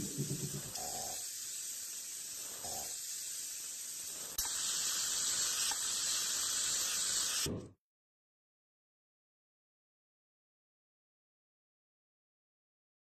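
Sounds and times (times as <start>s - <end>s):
airbrush spraying hiss: 0.0s - 7.5s.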